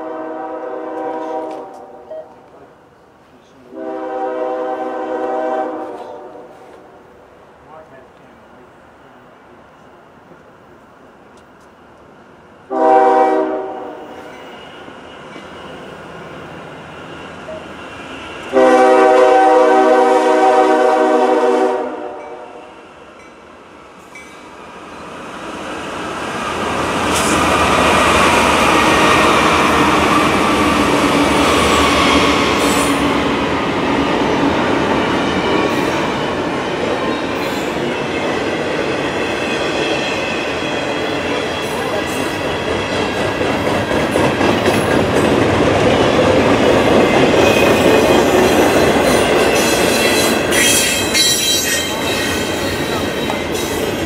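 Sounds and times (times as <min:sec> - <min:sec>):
locomotive air horn: 0:00.0 - 0:01.9, 0:03.7 - 0:06.6, 0:12.7 - 0:14.3, 0:18.5 - 0:22.4
train wheels rumbling and clattering: 0:24.0 - 0:54.0.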